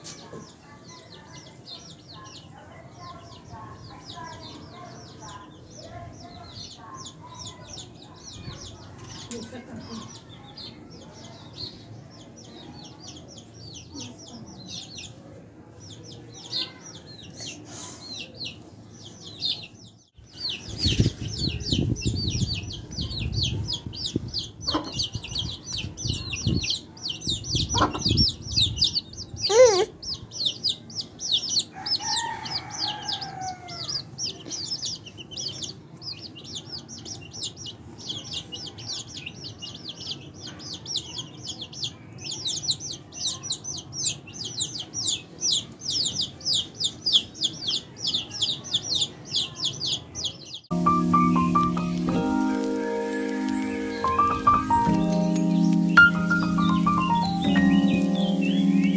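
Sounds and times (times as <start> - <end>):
chicks peeping: 0.0 - 58.9
hen clucking: 24.6 - 25.5, 27.6 - 28.4.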